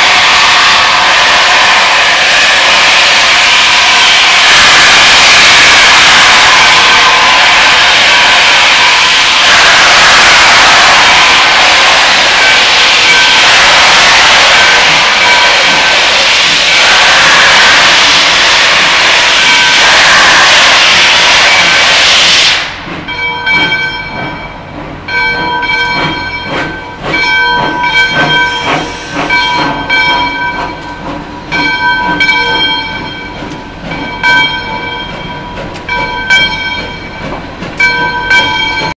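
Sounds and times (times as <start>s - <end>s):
loud hiss of steam: 0.0s - 22.9s, 27.6s - 32.6s
rail noise: 0.0s - 39.0s
bell ringing steadily: 23.1s - 28.7s, 29.3s - 39.0s.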